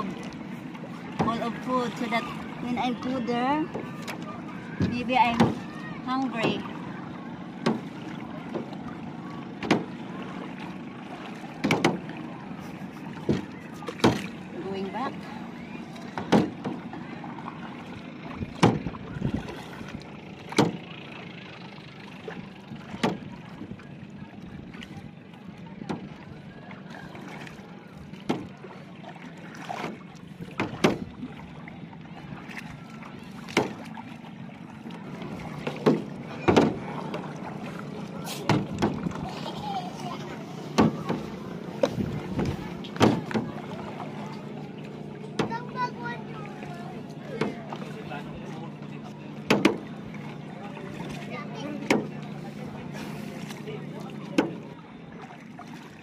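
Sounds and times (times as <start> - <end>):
paddle knocks: 0.0 - 2.6, 3.7 - 6.9, 7.5 - 15.0, 15.9 - 20.9, 22.4 - 23.8, 25.8 - 26.2, 27.2 - 39.5, 40.2 - 56.0
paddle water wash: 0.0 - 56.0.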